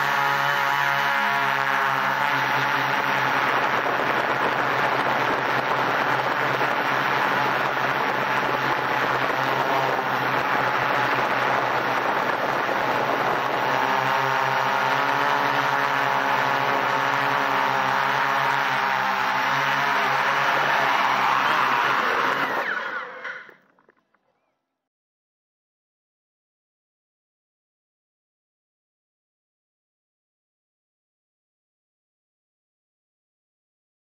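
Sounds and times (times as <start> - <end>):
drone motors buzzing: 0.0 - 23.6.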